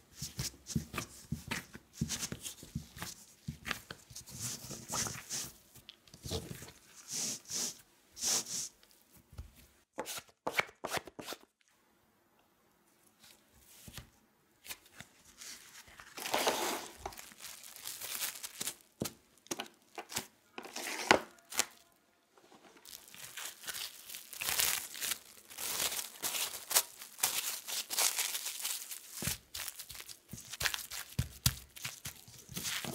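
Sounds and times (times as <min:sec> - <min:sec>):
cling film crinkling: 0:15.4 - 0:19.0, 0:22.8 - 0:32.9.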